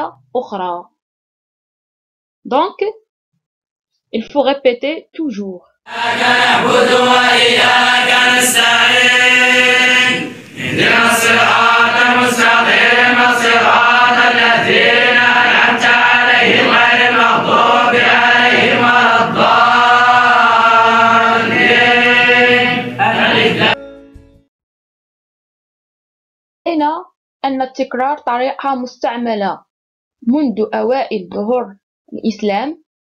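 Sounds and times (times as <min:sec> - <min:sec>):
group of men chanting in unison: 0:05.9 - 0:23.8.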